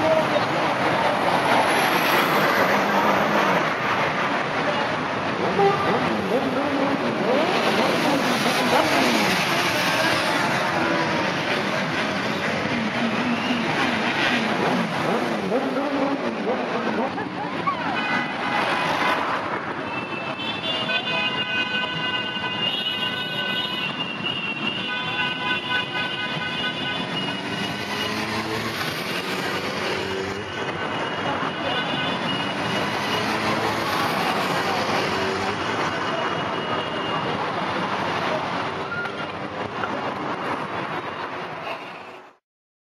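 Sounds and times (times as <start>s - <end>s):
motorcycles revving past: 27.4s - 30.4s, 32.5s - 35.6s.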